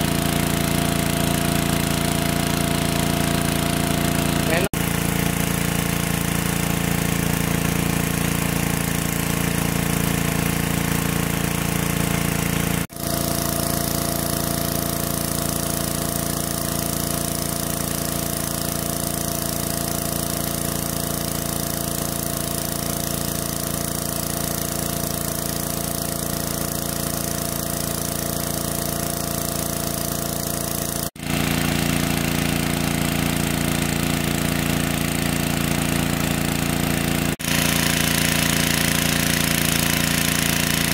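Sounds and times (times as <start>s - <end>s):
water pump engine humming: 0.0s - 40.9s.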